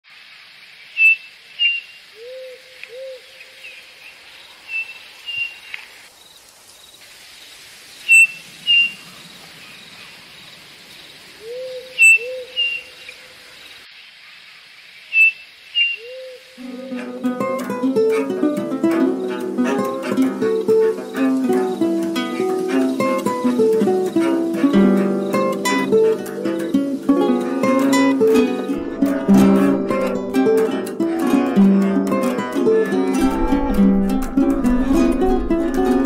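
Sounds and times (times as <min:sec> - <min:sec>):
insect hiss: 0:00.0 - 0:36.0
birds chirping: 0:08.0 - 0:36.0
two-note hooting calls: 0:15.2 - 0:36.0
plucked guitar: 0:16.6 - 0:36.0.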